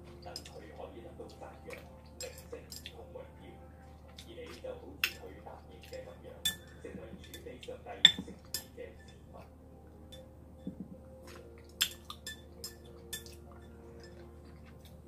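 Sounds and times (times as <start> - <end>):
cutlery clinking against a dish: 0.2 - 0.7, 1.7 - 3.0, 4.1 - 9.3, 10.1 - 15.0.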